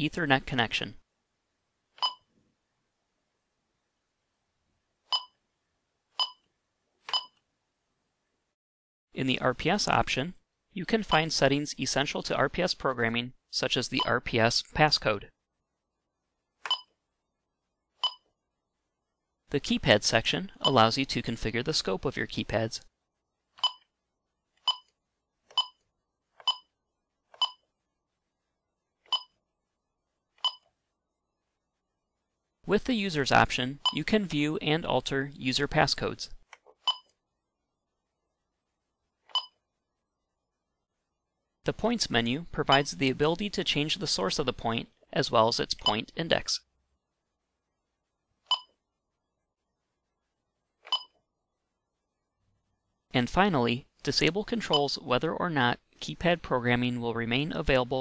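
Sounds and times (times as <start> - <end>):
keypad beeps: 2.0 - 2.3, 5.1 - 5.4, 6.2 - 6.4, 7.1 - 7.4, 16.7 - 16.9, 18.0 - 18.2, 23.6 - 23.8, 24.7 - 24.9, 25.6 - 25.8, 26.5 - 26.7, 27.4 - 27.6, 29.1 - 29.3, 30.4 - 30.6, 36.9 - 37.1, 39.3 - 39.6, 48.5 - 48.7, 50.9 - 51.1.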